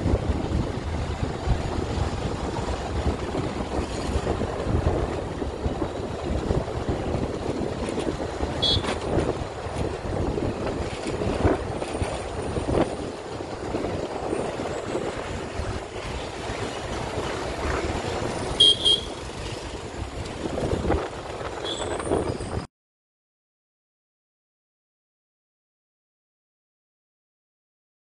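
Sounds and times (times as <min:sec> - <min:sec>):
motorcycle engine and road rumble: 0:00.0 - 0:22.7
wind buffeting microphone: 0:00.0 - 0:22.7
short horn beeps: 0:08.6 - 0:09.0, 0:18.6 - 0:19.3, 0:21.6 - 0:22.1.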